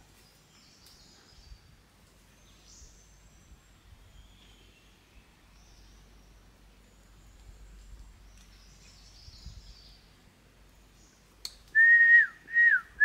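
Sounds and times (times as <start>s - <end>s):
click: 11.4s - 11.8s
whistled notes sliding down: 11.8s - 13.0s.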